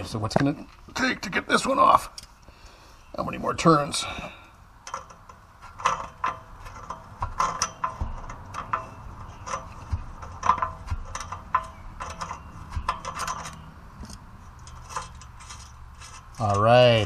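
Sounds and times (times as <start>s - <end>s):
metal tool clicking and scraping: 4.8s - 17.0s.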